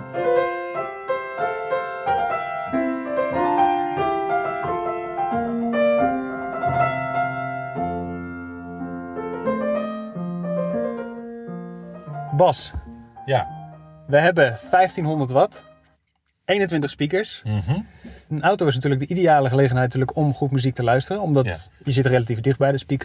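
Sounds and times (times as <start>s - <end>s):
slow grand piano: 0.0s - 15.9s.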